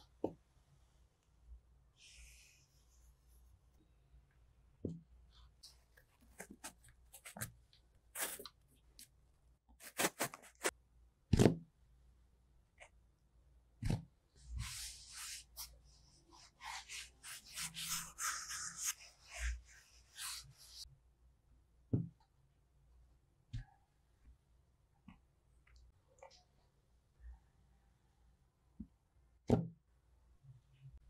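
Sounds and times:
hands handling kinetic sand: 5.6s - 7.6s, 8.2s - 9.1s, 9.8s - 10.7s, 16.4s - 20.8s
sand scraping and rubbing: 9.8s - 10.7s, 16.6s - 20.8s.

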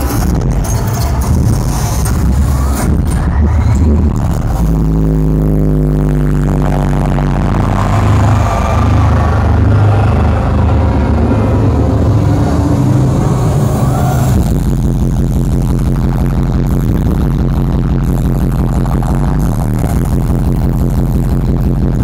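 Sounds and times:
dubstep bass music: 0.0s - 22.0s.

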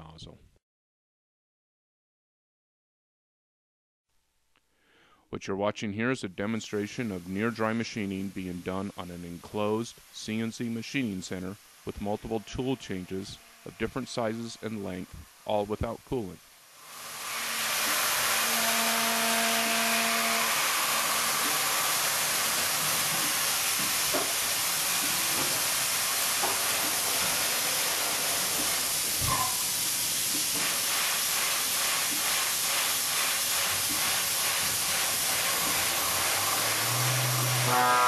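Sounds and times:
machine cutting hiss: 6.7s - 38.0s
drill pulsing: 12.0s - 15.4s, 16.8s - 38.0s.

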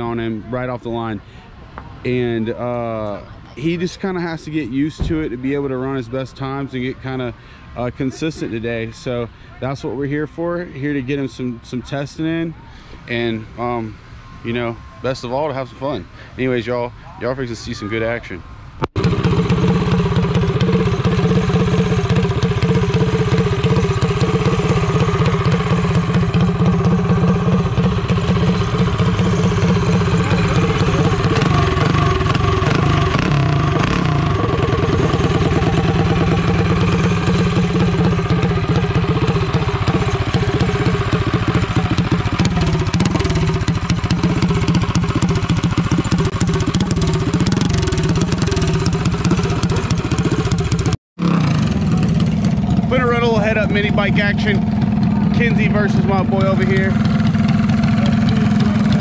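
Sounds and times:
mini bike engine running: 19.0s - 59.0s.

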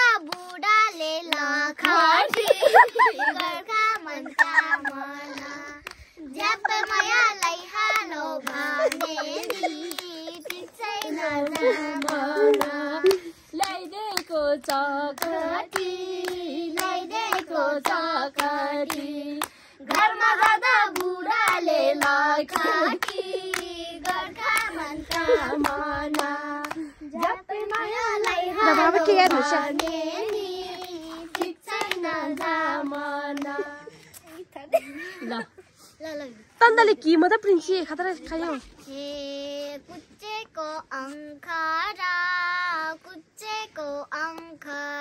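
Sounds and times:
girls and woman singing: 0.0s - 34.2s, 38.5s - 45.0s
hands clapping: 1.3s - 34.4s.

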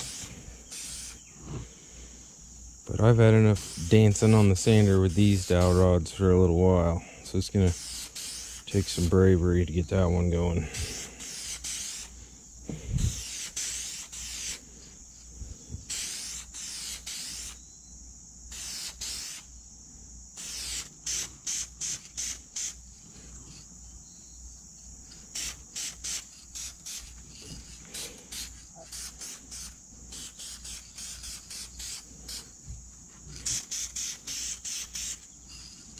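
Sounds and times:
aerosol spray can hissing: 0.0s - 1.2s, 3.5s - 5.8s, 7.7s - 9.2s, 10.8s - 12.1s, 13.0s - 14.6s, 15.9s - 17.6s, 18.5s - 19.5s, 20.4s - 22.8s, 25.3s - 32.6s, 33.3s - 35.6s
high insect chirring: 0.0s - 35.9s.

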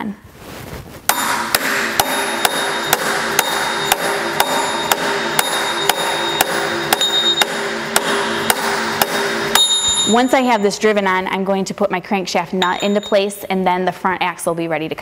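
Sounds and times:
hammer striking metal pulley: 1.1s - 10.7s, 12.6s - 13.3s.

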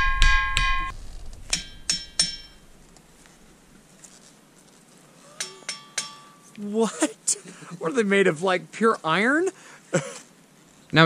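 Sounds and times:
hammer striking ringing rock: 0.0s - 2.7s, 5.4s - 6.5s.

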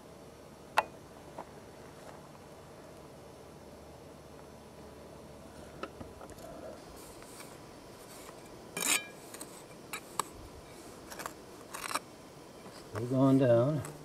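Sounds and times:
trowel scraping in sand: 7.2s - 10.3s, 11.0s - 12.0s.

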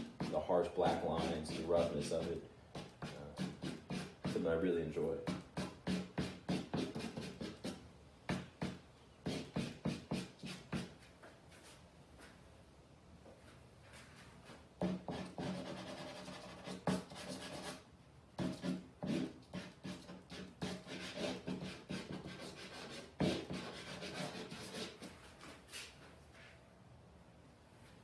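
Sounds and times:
charcoal scratching on canvas: 0.0s - 4.4s, 8.6s - 10.9s, 14.9s - 17.8s, 18.4s - 25.9s.

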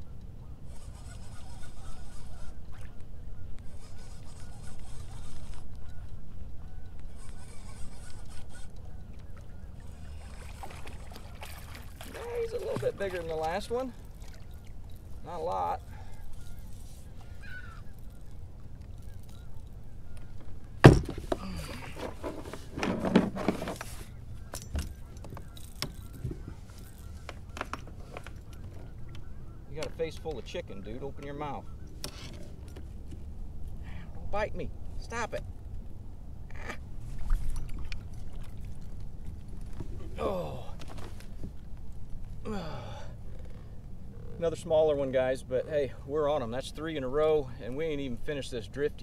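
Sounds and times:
fish splashing and thrashing: 9.8s - 15.2s.

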